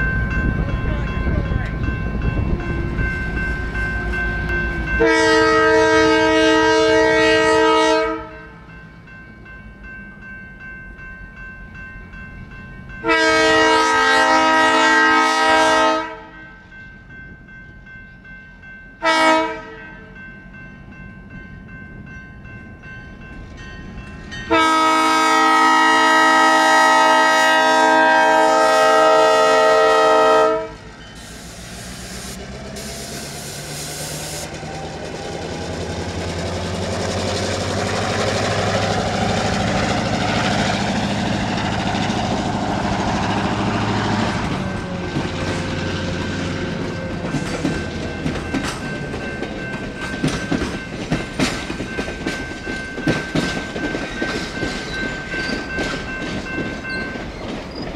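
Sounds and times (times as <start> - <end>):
diesel locomotive engine: 0.0 - 57.9
locomotive air horn blast: 3.6 - 8.6, 13.0 - 16.4, 19.0 - 19.9, 24.5 - 34.5
train wheels clacking on rail joints: 34.4 - 57.9.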